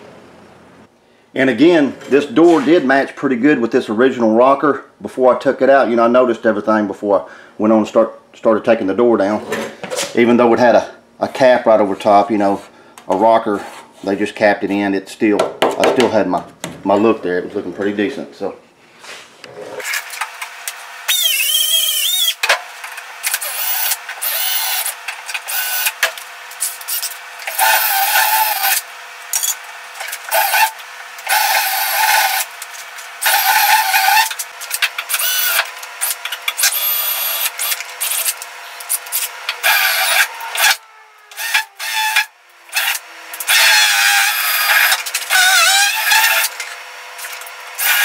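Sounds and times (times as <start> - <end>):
drill whining through metal: 19.8 - 48.0.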